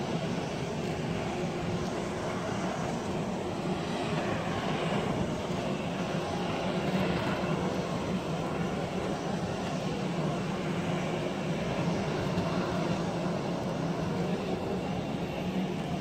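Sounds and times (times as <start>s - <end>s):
jet engines running: 0.0s - 16.0s.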